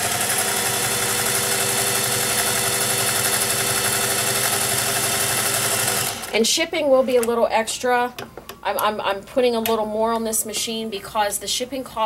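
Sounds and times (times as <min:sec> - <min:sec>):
sewing machine running: 0:00.0 - 0:06.4.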